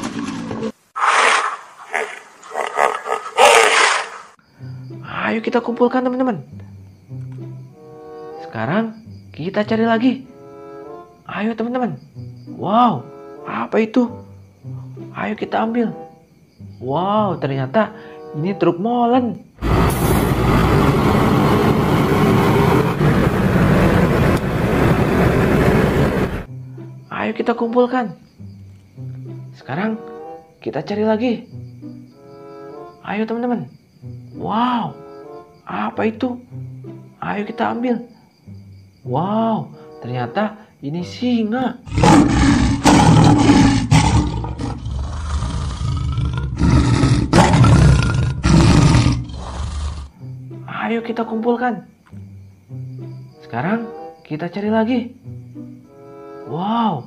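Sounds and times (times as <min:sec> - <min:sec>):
lion roaring: 0:00.0 - 0:04.1, 0:41.8 - 0:50.1
diesel engine rumbling: 0:19.6 - 0:26.5.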